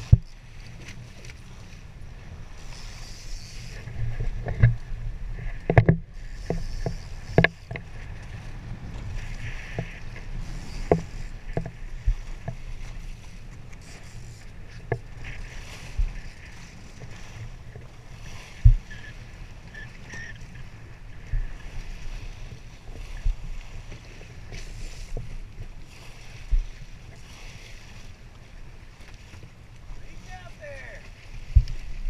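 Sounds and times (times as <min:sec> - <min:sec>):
waves slapping boat hull: 0:00.0 - 0:32.0
wind: 0:00.0 - 0:32.0.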